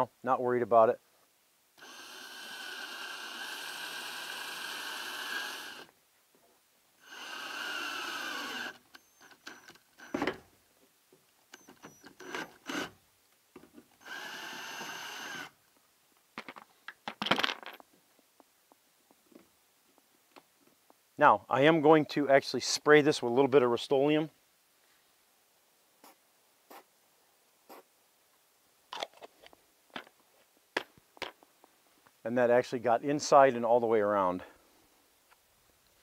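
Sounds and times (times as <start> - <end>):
cordless drill whining: 1.8 - 5.9, 7.0 - 10.4, 11.5 - 13.0, 14.0 - 15.6.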